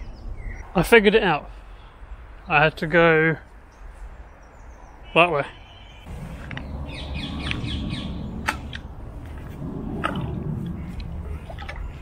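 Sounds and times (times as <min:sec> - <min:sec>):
birds chirping faintly: 0:00.0 - 0:12.0
low uneven rumble: 0:06.1 - 0:12.0.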